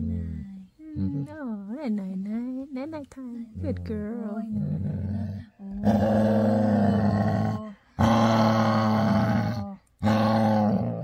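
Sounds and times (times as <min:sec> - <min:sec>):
dog growling low: 0:03.6 - 0:11.0.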